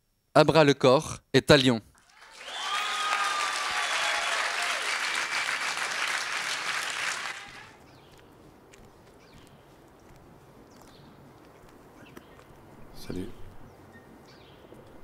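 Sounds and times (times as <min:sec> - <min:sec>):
audience applause: 0:02.0 - 0:07.8.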